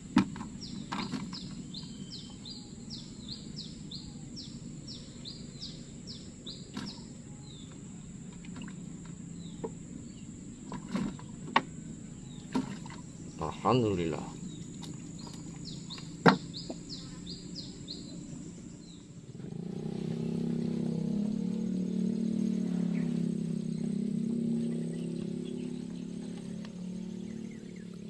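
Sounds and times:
knocks in boat: 0.0s - 2.0s, 6.7s - 7.1s, 10.7s - 11.7s, 12.4s - 13.1s, 14.8s - 17.1s
low outdoor hum: 0.0s - 28.0s
bird chirping: 0.4s - 19.2s, 21.6s - 28.0s.

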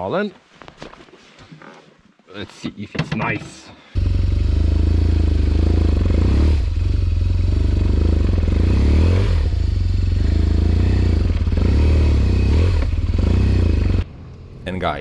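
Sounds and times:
motorcycle engine at low revs: 4.0s - 14.5s.

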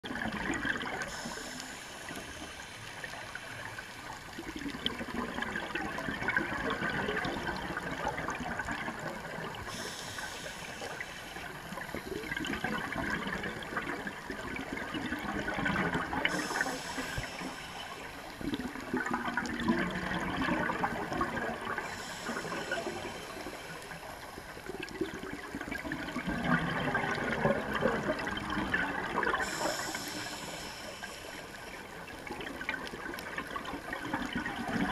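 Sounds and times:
exhaled air bubbles gurgling: 0.0s - 34.9s
scuba regulator breathing underwater: 1.0s - 3.6s, 9.2s - 25.2s, 26.0s - 32.2s.

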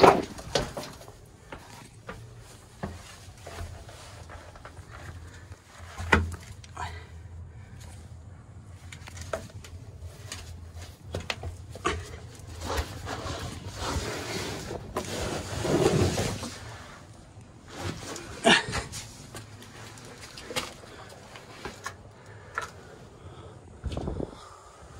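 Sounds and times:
rough rubbing noise: 12.5s - 18.4s.

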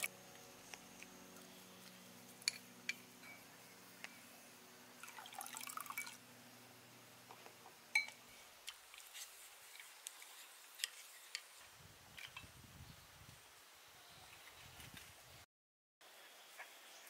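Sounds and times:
liquid dripping: 5.0s - 6.2s.

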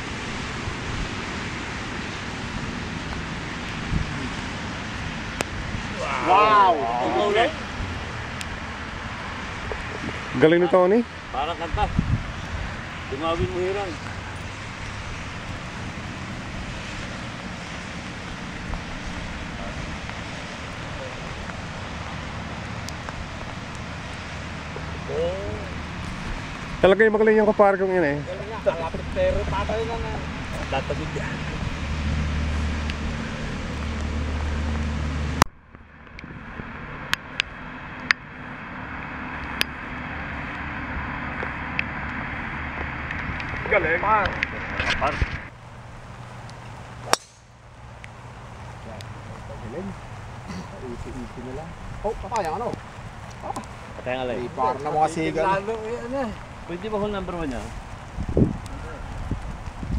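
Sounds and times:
wind buffeting microphone: 0.0s - 6.2s, 11.1s - 27.6s, 48.2s - 59.9s
low outdoor rumble: 0.0s - 59.9s.

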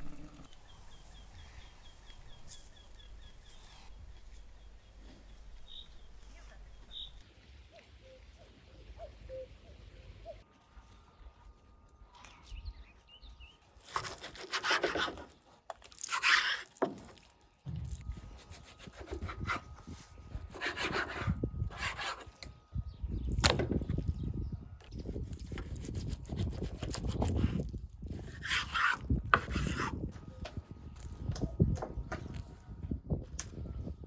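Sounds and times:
knife sawing through ribs: 16.0s - 16.8s, 25.1s - 30.0s.

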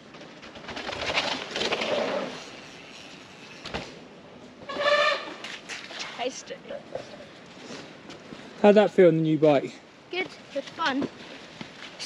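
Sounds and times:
bike tyres rolling on dirt: 0.0s - 6.1s.

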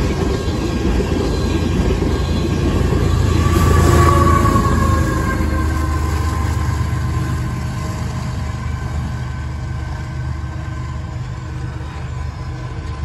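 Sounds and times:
diesel locomotive engine droning: 0.0s - 13.0s.

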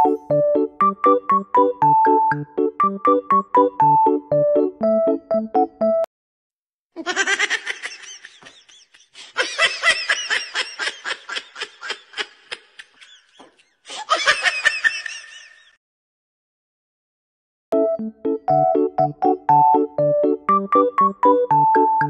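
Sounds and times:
person laughing: 7.0s - 15.8s.

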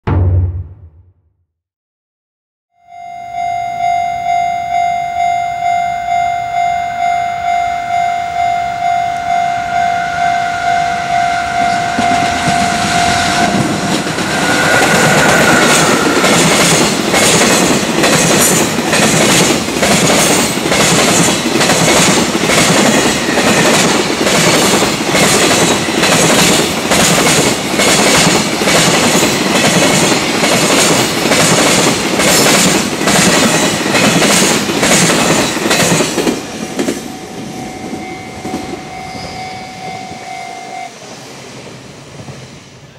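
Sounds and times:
level crossing warning bell: 2.8s - 17.0s, 35.5s - 40.9s
train wheels clattering over rail joints: 15.2s - 37.0s.

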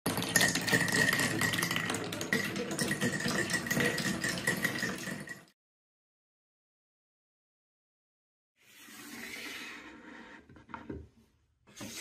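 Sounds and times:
marbles rolling on wooden rails: 0.1s - 5.5s.

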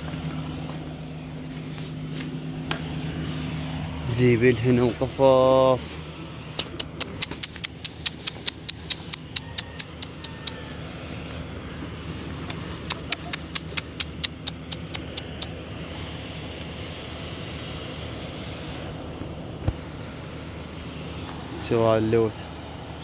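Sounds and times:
footsteps on gravelly dirt: 0.0s - 4.2s
low machine hum: 0.0s - 23.0s.

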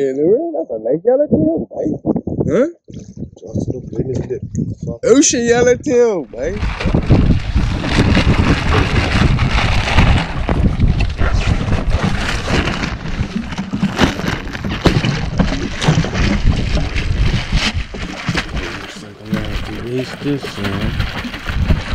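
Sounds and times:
wind buffeting microphone: 0.6s - 21.9s
water sloshing against hull: 6.6s - 21.9s.

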